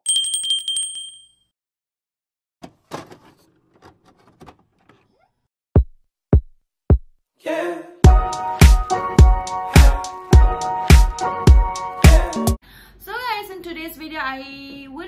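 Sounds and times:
music: 8.0 - 12.6.

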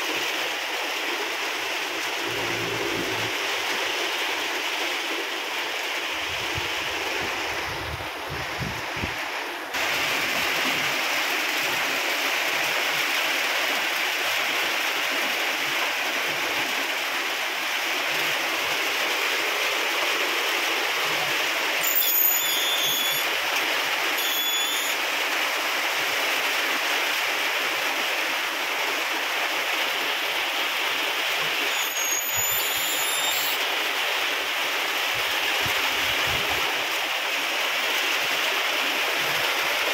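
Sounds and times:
heavy rain hissing: 0.0 - 39.9.

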